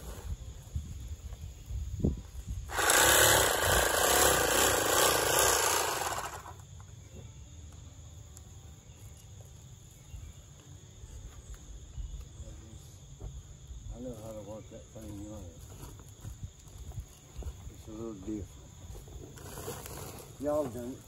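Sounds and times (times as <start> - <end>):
bag sewing machine running: 2.7 - 6.6.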